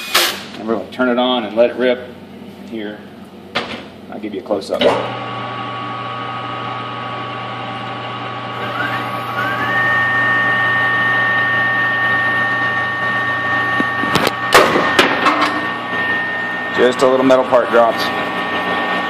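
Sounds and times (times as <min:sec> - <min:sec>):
lathe machine hum and whine: 0:05.0 - 0:19.0.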